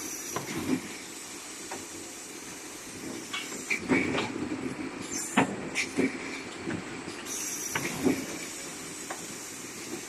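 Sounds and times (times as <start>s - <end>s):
compressed air hissing: 0.0s - 4.1s, 7.2s - 10.0s.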